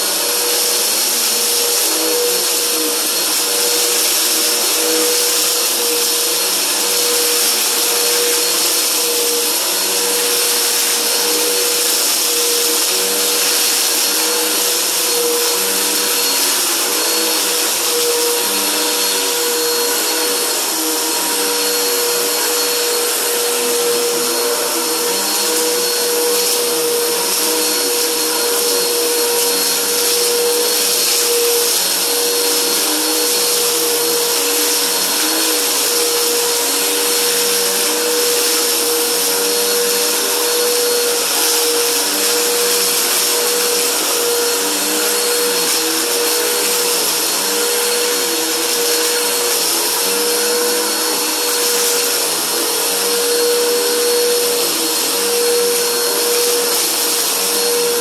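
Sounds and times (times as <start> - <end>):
vacuum cleaner running on carpet: 0.0 - 58.0.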